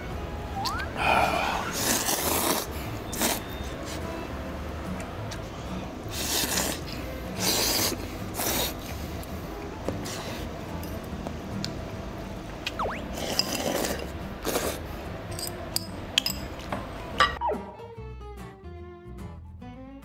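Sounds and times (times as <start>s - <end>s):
person slurping noodles: 1.0s - 3.6s, 6.1s - 8.9s, 13.0s - 14.9s.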